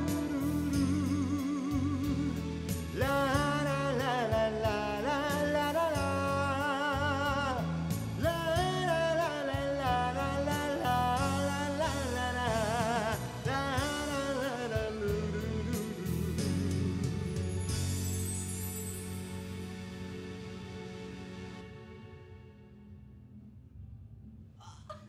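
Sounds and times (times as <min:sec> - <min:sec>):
man singing a ballad: 0:00.0 - 0:17.3
karaoke backing track: 0:00.0 - 0:20.5.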